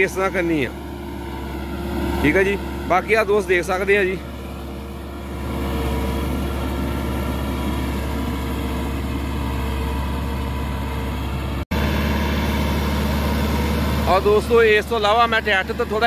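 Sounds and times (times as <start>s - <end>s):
tractor diesel engine running: 0.0s - 16.0s.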